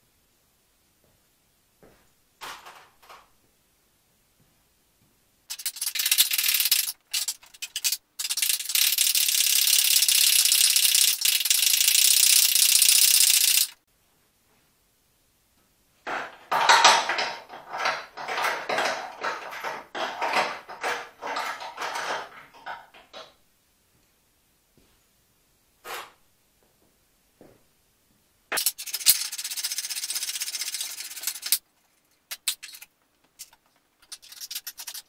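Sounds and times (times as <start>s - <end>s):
ratchet wrench clicking: 5.5s - 13.8s, 28.6s - 31.6s.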